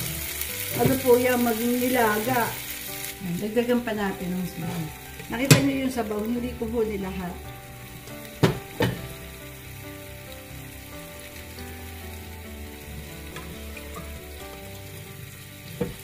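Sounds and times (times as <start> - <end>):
broth being ladled: 0.0 - 16.0
food sizzling in a frying pan: 0.0 - 16.0
ladle knocking cookware: 8.4 - 9.1.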